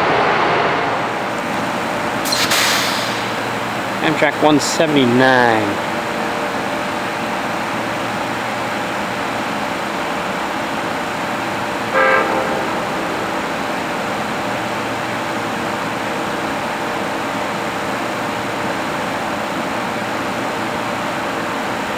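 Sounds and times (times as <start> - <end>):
steady background noise: 0.0 - 21.9
train horn blast: 11.9 - 14.2.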